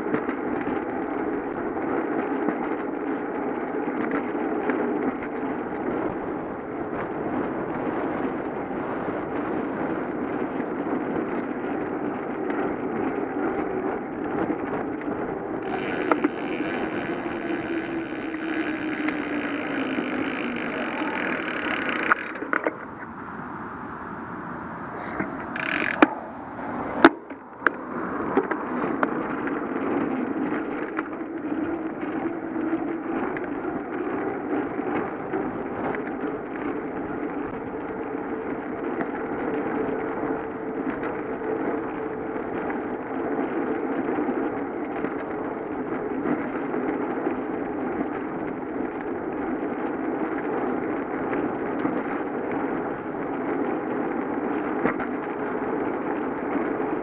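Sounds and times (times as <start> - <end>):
bicycle tyres rolling: 0.0 - 57.0
wind noise: 0.0 - 57.0
sharp clicks: 15.7 - 23.0, 25.1 - 26.2.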